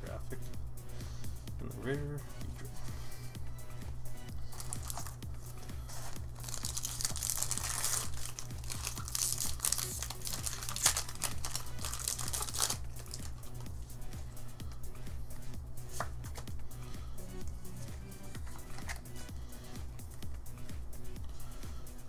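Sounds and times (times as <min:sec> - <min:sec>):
background music: 0:00.0 - 0:22.0
foil wrapper crinkling and tearing: 0:04.5 - 0:05.2, 0:05.8 - 0:13.6.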